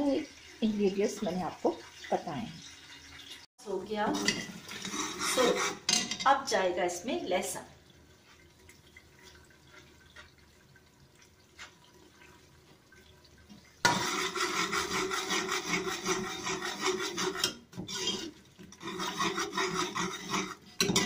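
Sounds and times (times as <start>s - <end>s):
onions frying in oil: 0.0s - 5.6s
spoon scraping metal pot: 4.0s - 6.3s, 13.8s - 21.0s.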